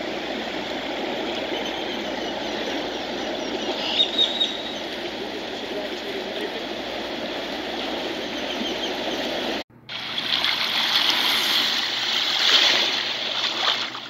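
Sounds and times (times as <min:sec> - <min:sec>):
steady outdoor noise: 0:00.0 - 0:14.0
small wave washing over sand: 0:09.9 - 0:14.0.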